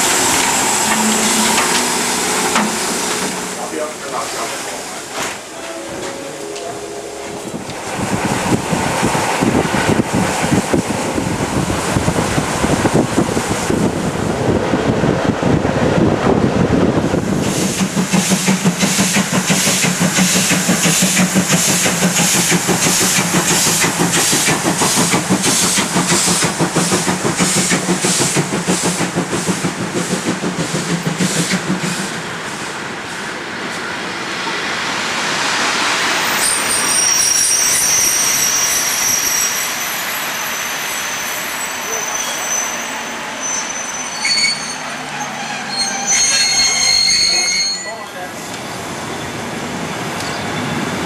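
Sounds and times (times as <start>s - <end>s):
train running with regular beat: 0.0s - 4.5s, 16.9s - 33.8s
quiet rushing of train: 0.0s - 51.0s
high-pitched squeal from train: 0.1s - 4.5s, 5.2s - 7.6s, 36.1s - 51.0s.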